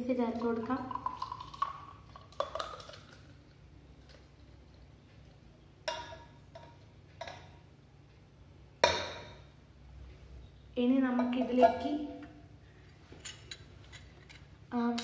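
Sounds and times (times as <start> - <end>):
liquid pouring into glass: 0.4 - 3.4.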